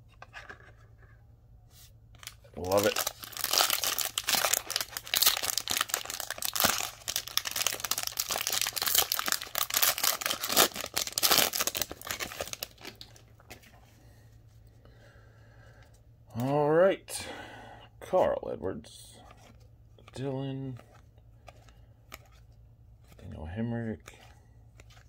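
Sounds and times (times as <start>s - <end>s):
plastic foil wrapper crinkling: 2.2s - 13.2s.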